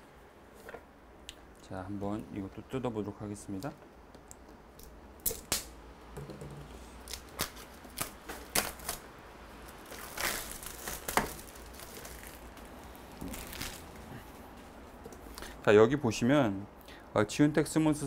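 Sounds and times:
plastic shrink-wrap tearing: 7.1 - 14.2.

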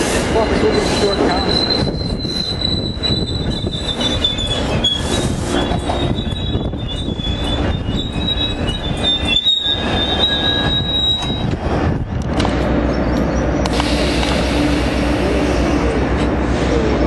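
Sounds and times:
train wheel and brake squeal: 0.0 - 11.6
train rumble: 0.0 - 17.0.

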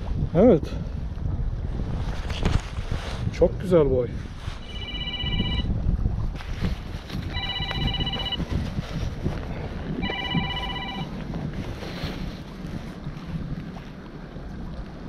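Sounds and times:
wind rumble on microphone: 0.0 - 15.0
mobile phone ringing: 4.6 - 5.7, 7.3 - 8.5, 10.0 - 11.2.

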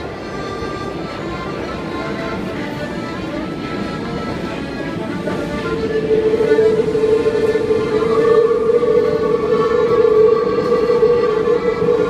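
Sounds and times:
train whine: 0.0 - 12.0
wheels rumbling on rails: 0.0 - 12.0
higher tone: 5.6 - 12.0.

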